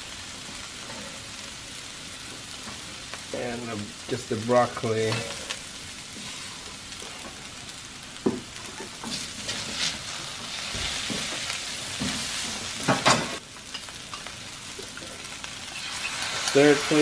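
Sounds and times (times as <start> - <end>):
noodles sizzling in a wok: 0.0 - 17.0.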